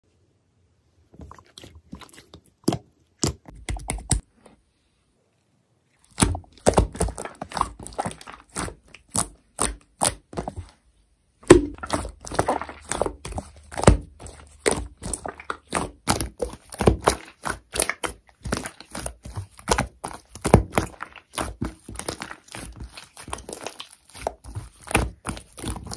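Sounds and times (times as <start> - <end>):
slime squished by hands: 6.0 - 10.8, 11.4 - 25.9.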